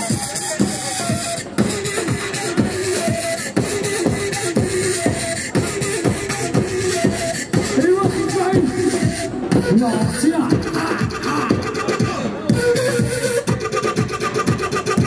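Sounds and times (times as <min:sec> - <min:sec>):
drum beat sliding in pitch: 0:00.0 - 0:15.0
repeating dance melody: 0:00.0 - 0:15.0.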